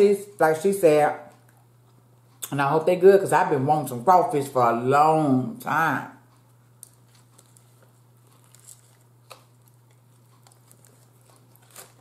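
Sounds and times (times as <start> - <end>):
faint chewing: 6.3 - 12.0.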